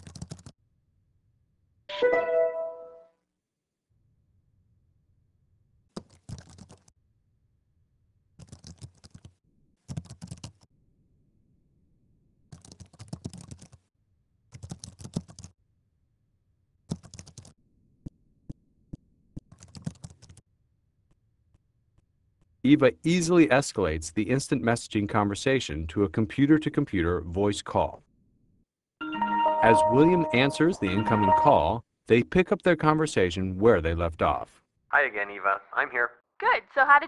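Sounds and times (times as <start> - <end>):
laptop keyboard typing: 0.0 - 0.6, 5.9 - 6.9, 8.4 - 10.7, 12.5 - 13.9, 14.5 - 15.6, 16.9 - 17.6, 19.4 - 20.4.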